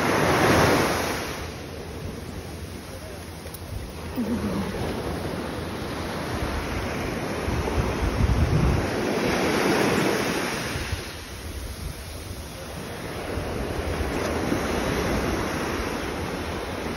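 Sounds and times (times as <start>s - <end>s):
surf washing over sand: 0.0s - 16.9s
wind on microphone: 3.6s - 16.9s.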